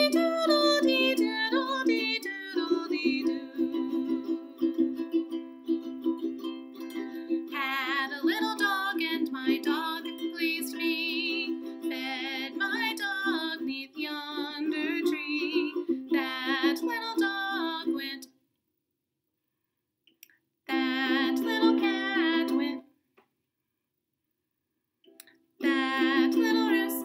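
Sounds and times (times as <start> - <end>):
woman singing: 0.0 - 4.6, 7.5 - 18.3, 20.7 - 22.8, 25.6 - 27.0
ukulele strumming: 0.0 - 18.2, 20.7 - 22.8, 25.6 - 27.0.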